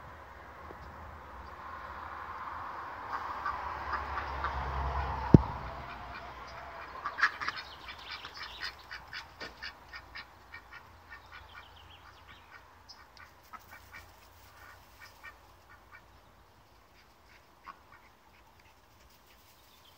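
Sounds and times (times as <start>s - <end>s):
duck quacking: 5.8s - 16.1s.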